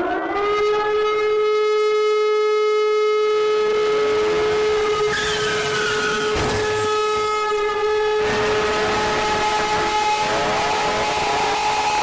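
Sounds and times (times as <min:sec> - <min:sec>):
siren loud steady tone: 0:00.0 - 0:12.0
hissing with falling whistle: 0:05.0 - 0:07.1.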